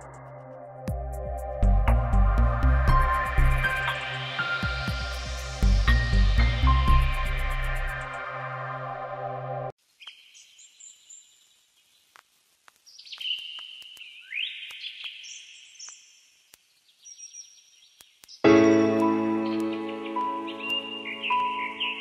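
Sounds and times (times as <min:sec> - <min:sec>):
music: 0:00.0 - 0:09.7, 0:18.4 - 0:22.0
birds chirping: 0:16.9 - 0:22.0.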